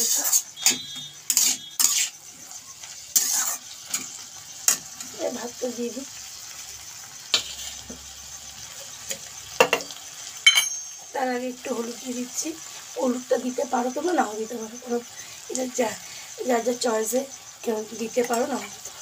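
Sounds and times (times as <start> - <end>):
metal spatula scraping a wok: 0.0 - 5.0, 7.3 - 8.0
vegetables sizzling: 0.0 - 19.0.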